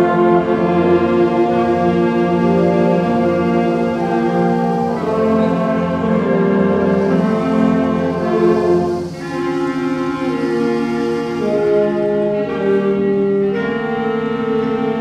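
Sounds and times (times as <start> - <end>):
concert band playing sustained chords: 0.0 - 15.0.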